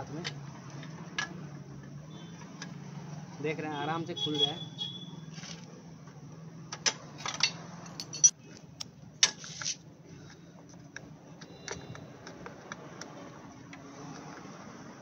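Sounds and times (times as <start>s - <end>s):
spanner clinking on metal: 7.2s - 8.4s.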